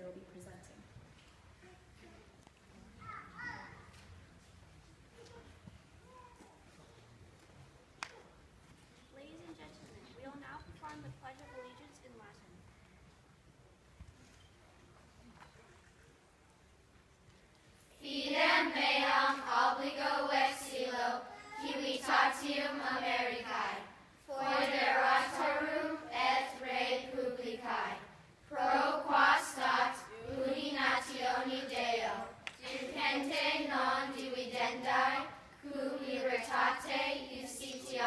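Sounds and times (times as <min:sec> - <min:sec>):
children reciting in unison: 0:18.0 - 0:38.0.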